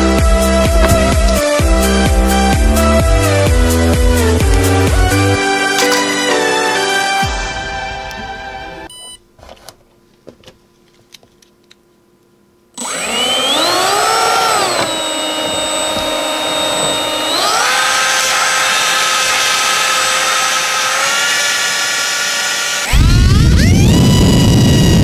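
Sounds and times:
small electric motor whining: 12.8s - 25.0s.

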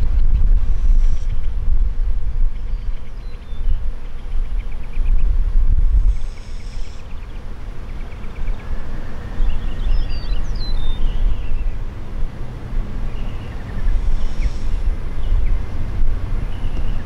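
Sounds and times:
small birds chirping: 0.0s - 1.6s, 2.4s - 12.0s, 12.9s - 17.0s
low uneven rumble: 0.0s - 17.0s.

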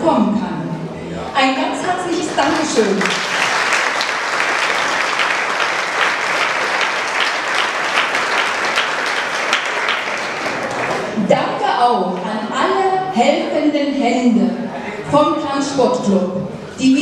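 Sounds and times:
audience applauding: 2.0s - 11.2s.

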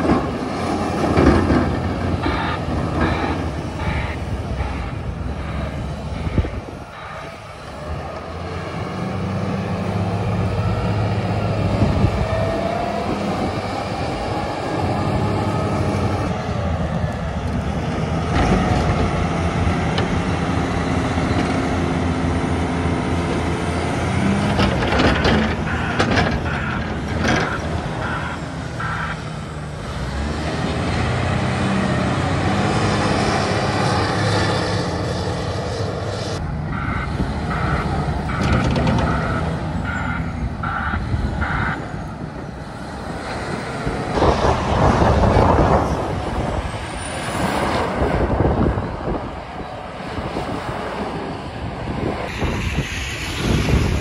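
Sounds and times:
reversing alarm beeping: 2.2s - 7.4s, 25.1s - 29.4s, 36.7s - 42.0s.

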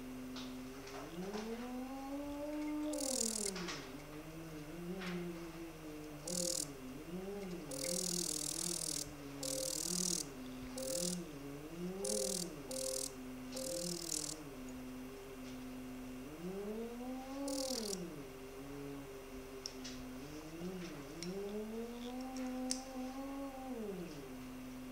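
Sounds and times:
machine feedback tone bending: 2.9s - 3.6s, 6.2s - 6.8s, 7.7s - 11.3s, 12.0s - 14.4s, 17.4s - 18.1s.

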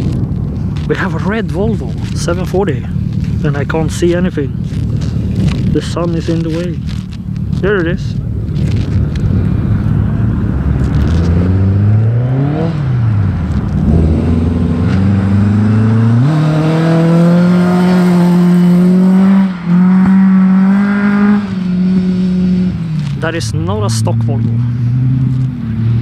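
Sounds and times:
car engine revving hard: 10.0s - 26.0s.

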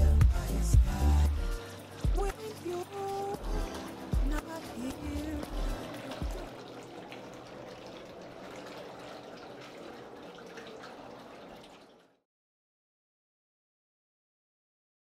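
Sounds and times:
bathtub jets churning water: 0.5s - 12.2s.

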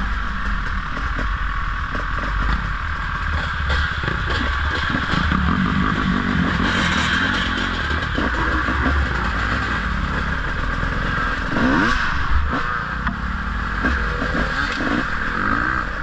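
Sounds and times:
bikes rattling over rough ground: 0.0s - 12.6s
dirt bike engines running: 0.0s - 16.0s.

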